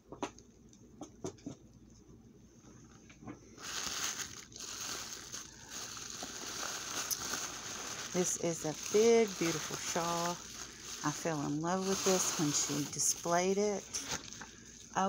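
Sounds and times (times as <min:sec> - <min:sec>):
plastic wrapping crinkling: 0:03.5 - 0:15.0.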